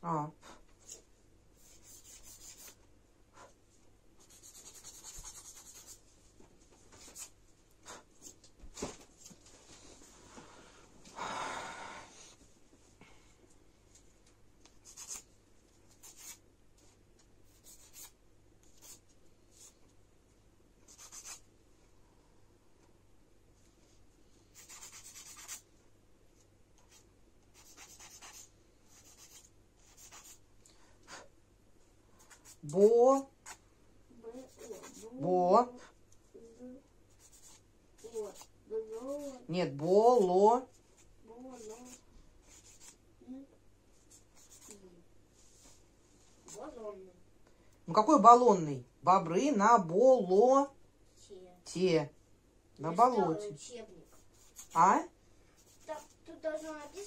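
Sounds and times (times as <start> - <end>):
nail file rasping on fingernails: 1.6 - 2.8, 4.2 - 6.0, 14.8 - 15.3, 15.9 - 16.4, 17.5 - 19.0, 20.9 - 21.4, 24.5 - 25.6, 26.9 - 30.4, 32.2 - 32.8, 34.4 - 35.1, 37.1 - 39.4, 41.5 - 43.0, 44.1 - 44.8, 54.1 - 54.9, 55.6 - 57.0
scratching on paper: 1.6 - 2.8, 4.2 - 6.1, 6.9 - 8.4, 14.7 - 15.3, 15.9 - 16.4, 17.4 - 19.8, 20.8 - 21.4, 24.5 - 25.6, 26.8 - 30.4, 32.2 - 33.6, 34.3 - 35.3, 37.1 - 39.4, 41.4 - 43.0, 44.0 - 44.8, 54.0 - 55.0, 55.6 - 57.0.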